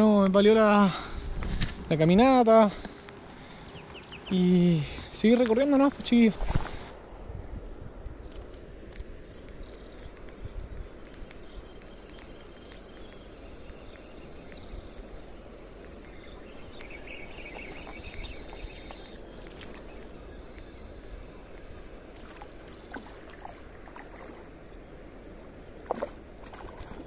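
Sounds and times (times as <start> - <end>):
faint clicks: 8.3 - 14.7.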